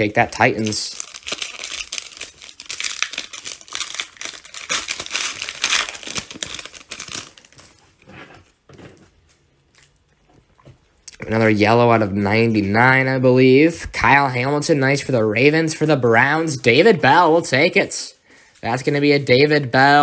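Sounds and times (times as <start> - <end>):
foil wrapper tearing and crinkling: 0.0 - 8.0
cards rustling: 0.0 - 9.4.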